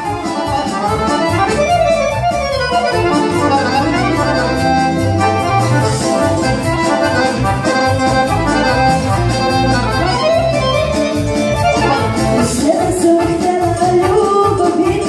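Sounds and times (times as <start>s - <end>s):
accordion playing quick notes: 0.0s - 15.0s
low bass line: 0.8s - 12.6s.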